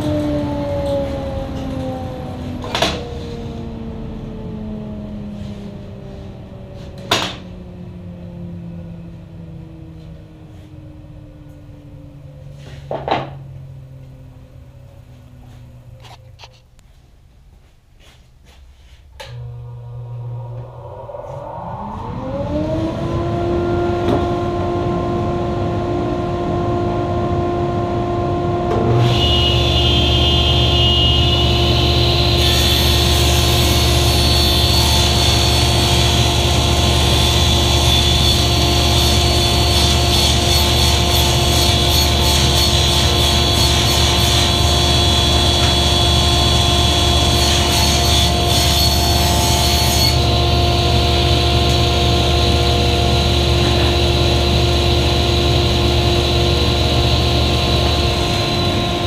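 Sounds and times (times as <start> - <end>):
deep steady hum: 19.2 - 32.4
table saw motor whining: 19.3 - 59.0
saw blade cutting plywood: 29.0 - 50.4.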